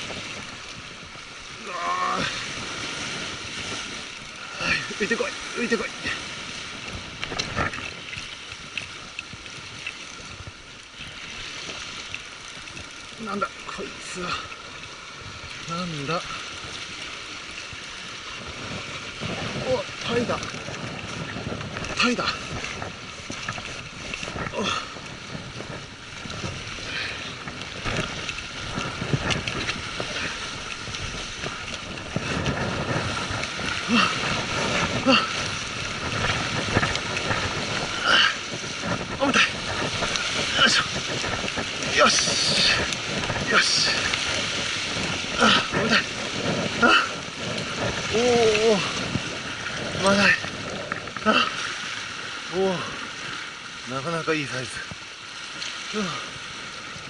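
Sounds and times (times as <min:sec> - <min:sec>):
sea splashing against rocks: 0:00.0 - 0:57.0
wind buffeting microphone: 0:00.0 - 0:57.0.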